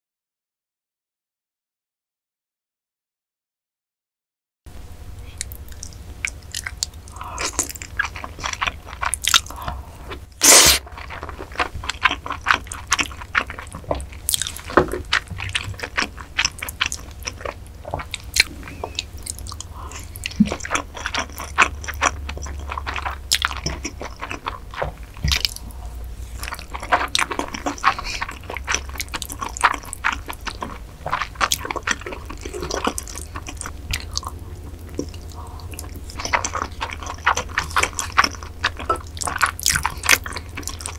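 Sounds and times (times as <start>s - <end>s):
wet chewing: 5.2s - 40.9s
noodles being slurped: 10.4s - 17.6s, 18.9s - 34.0s.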